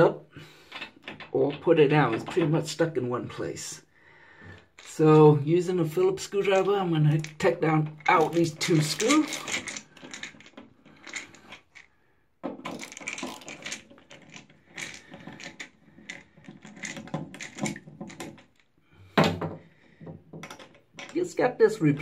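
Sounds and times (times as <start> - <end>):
screwdriver clicking in screw heads: 8.0 - 11.9.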